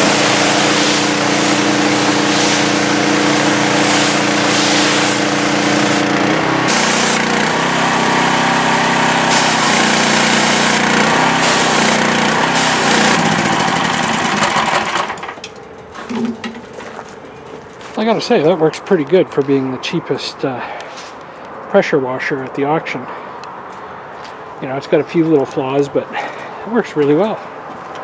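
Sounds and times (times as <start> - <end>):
pressure washer water hiss: 0.0 - 15.0
small gasoline engine running: 0.0 - 16.6.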